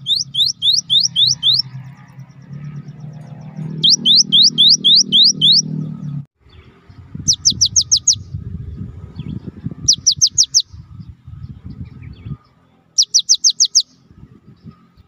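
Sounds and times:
bird whistling song: 0.0 - 1.7, 3.7 - 5.8, 7.0 - 8.3, 9.2 - 12.4, 13.0 - 14.1
low rumble: 5.6 - 10.0.

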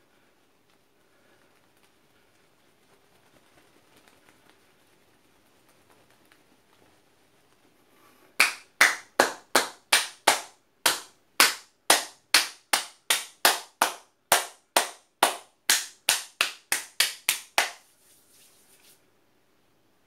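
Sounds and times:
sharp hand claps: 8.4 - 17.9.

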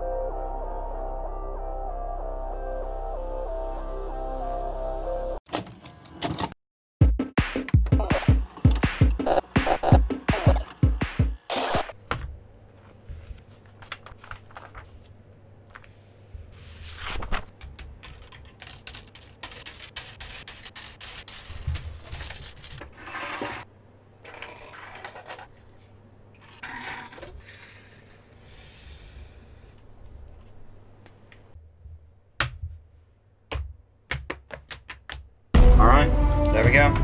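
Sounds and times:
paper rustling: 12.7 - 23.6.

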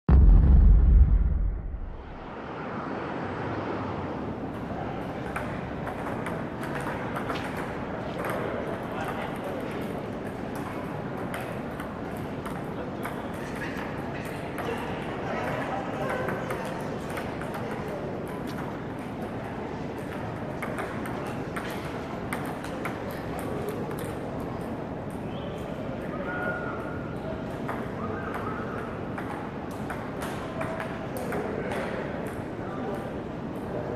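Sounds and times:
large hall background noise: 0.1 - 33.9
ping-pong balls clicking: 5.2 - 25.3, 26.8 - 33.0
table tennis balls clicking: 5.3 - 9.5, 20.0 - 25.2.

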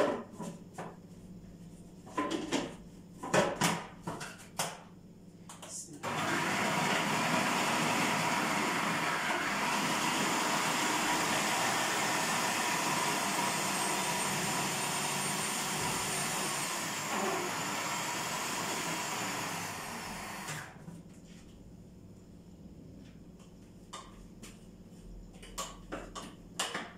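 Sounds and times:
food processor whining: 6.0 - 20.8.

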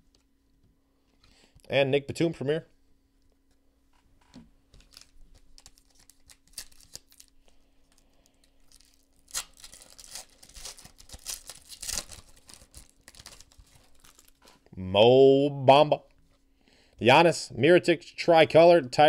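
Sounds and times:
faint steady hum: 0.0 - 19.0
foil wrappers crinkling and tearing: 4.7 - 14.7.

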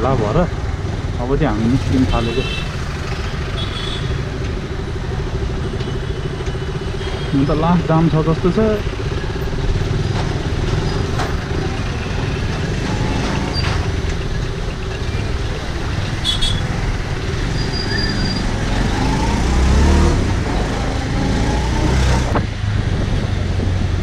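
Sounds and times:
street traffic: 0.0 - 24.0
wind rumble on microphone: 22.0 - 24.0.

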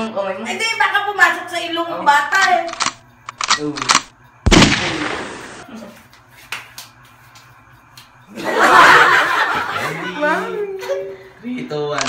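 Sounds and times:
loud burst of laughter: 8.4 - 10.0.

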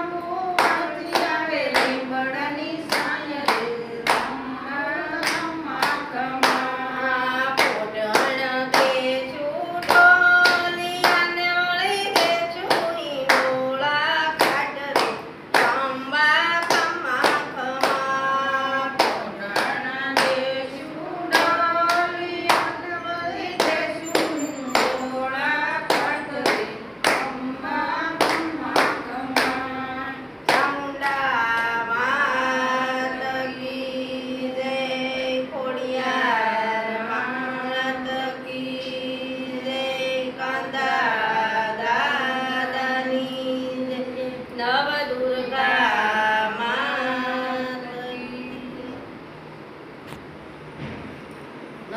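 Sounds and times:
women singing together: 0.0 - 49.4
hand claps: 0.6 - 2.0, 2.9 - 4.4, 5.2 - 6.7, 7.5 - 9.0, 9.8 - 11.3, 11.9 - 13.6, 14.4 - 15.9, 16.6 - 18.2, 18.9 - 20.4, 21.3 - 22.8, 23.5 - 25.0, 25.8 - 27.5, 28.1 - 29.7, 30.4 - 31.8.

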